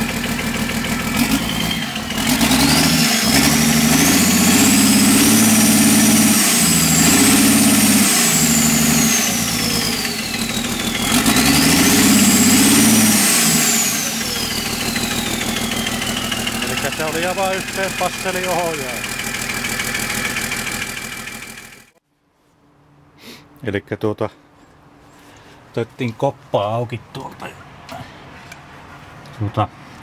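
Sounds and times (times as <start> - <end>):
diesel generator engine revving: 0.0 - 22.0.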